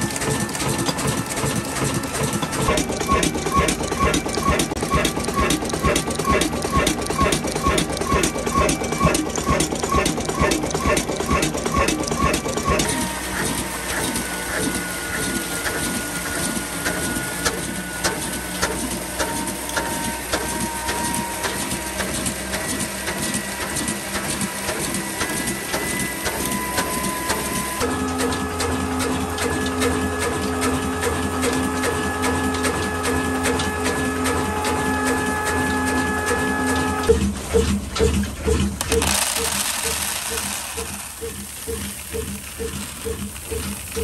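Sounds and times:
grinding mill hum: 0.0 - 44.0
stationary engine rhythmic knocking: 0.0 - 44.0.

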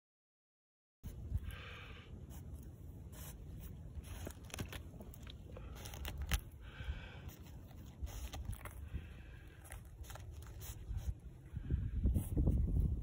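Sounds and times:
animal claws scratching gravel: 2.3 - 6.6, 7.2 - 11.3.

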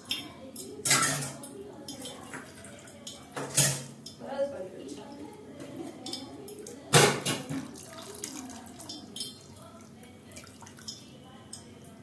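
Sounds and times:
water pouring and splashing: 7.4 - 11.0.

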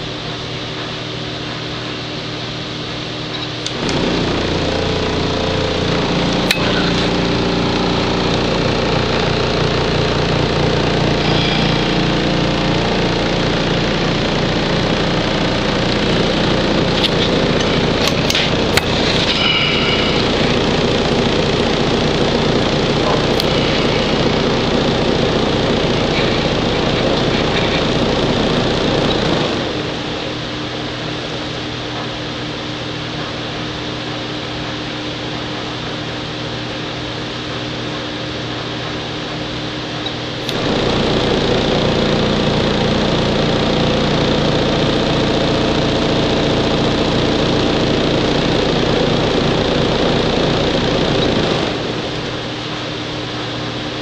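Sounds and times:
low steady hum: 3.3 - 30.5
vibration table running: 3.6 - 30.5, 40.3 - 52.7.

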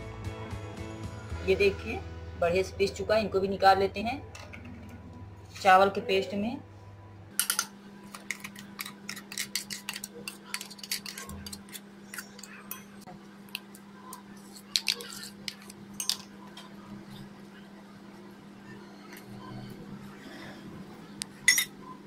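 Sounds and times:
steel spoon scraping metal jar: 8.3 - 12.9.

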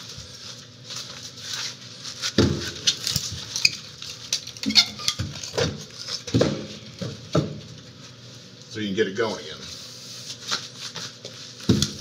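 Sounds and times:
charcoal chunks clinking: 2.2 - 7.0.

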